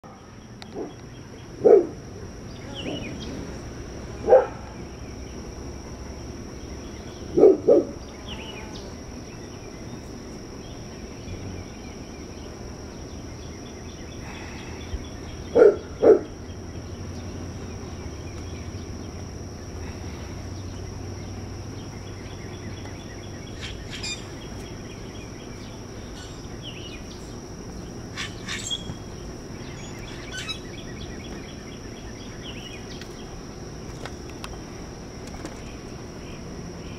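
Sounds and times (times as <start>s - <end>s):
birds chirping: 0.0s - 34.8s
high-pitched insect hum: 0.0s - 36.9s
dog barking: 1.6s - 2.0s, 4.2s - 4.7s, 7.4s - 8.0s, 15.6s - 16.3s.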